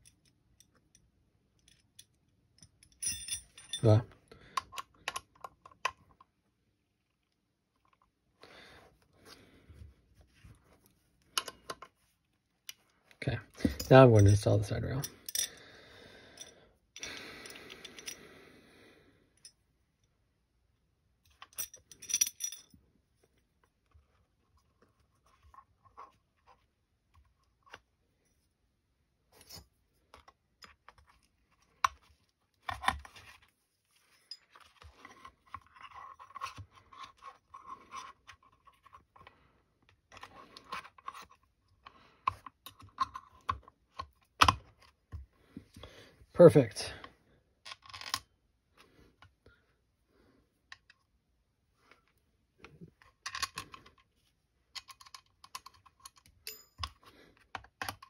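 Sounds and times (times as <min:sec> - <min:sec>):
light clicks and scrapes of hardware: 0:29.3 - 0:45.0.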